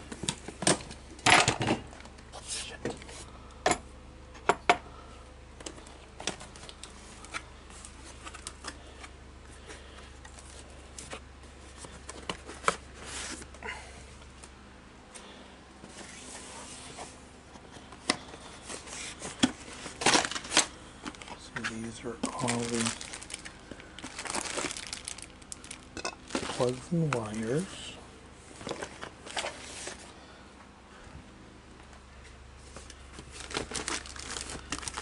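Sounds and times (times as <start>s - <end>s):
low steady hum: 0.0s - 35.0s
cardboard rustling: 18.2s - 27.7s, 32.8s - 35.0s.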